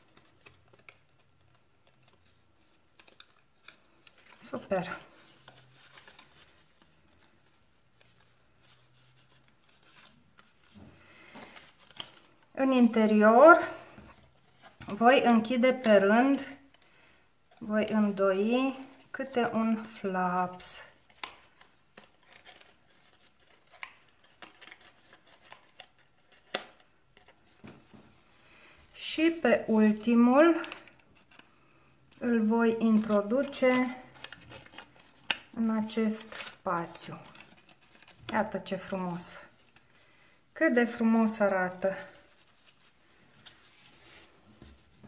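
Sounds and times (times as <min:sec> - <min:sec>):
cardstock rustling and tapping: 0:00.0 - 0:13.2, 0:32.2 - 0:39.9.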